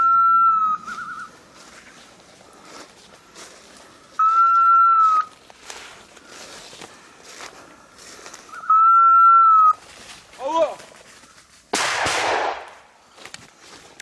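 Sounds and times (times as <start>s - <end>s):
dry leaves crunching underfoot: 0.8s - 4.2s, 4.8s - 8.7s, 9.6s - 11.8s, 12.6s - 14.0s
dog whistle blasts: 8.6s - 9.8s.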